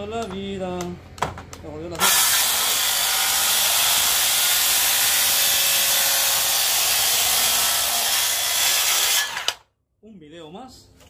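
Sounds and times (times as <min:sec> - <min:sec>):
circular saw cutting wood: 0:02.0 - 0:09.6.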